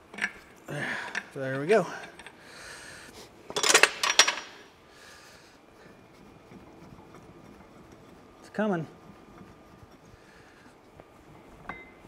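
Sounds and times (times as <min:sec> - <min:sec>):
wrench clinking on metal: 0:03.6 - 0:04.6.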